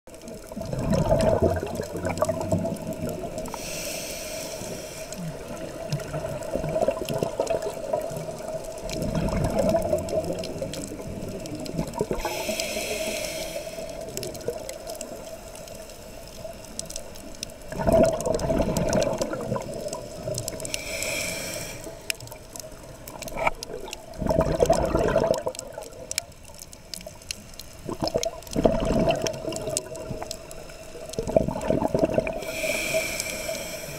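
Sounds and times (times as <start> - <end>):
exhaled bubbles rushing: 0.3 - 3.6, 5.3 - 12.5, 17.6 - 20.8, 22.2 - 26.7, 27.8 - 32.7
regulator hissing inhale: 3.4 - 5.5, 12.1 - 14.4, 20.5 - 22.4, 32.4 - 33.9.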